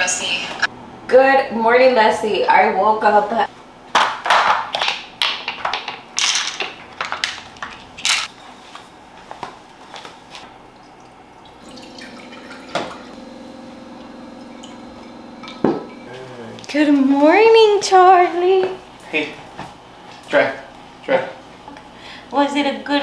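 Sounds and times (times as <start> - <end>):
ice-cube trays clattering: 4.3 - 8.3
steady low hum: 11.4 - 17.8.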